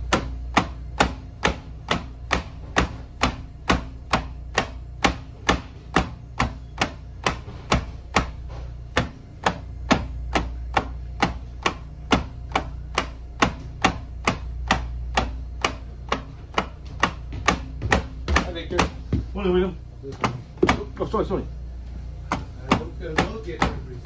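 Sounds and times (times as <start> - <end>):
foot kicking plywood board: 0.0 - 19.5, 20.1 - 20.9.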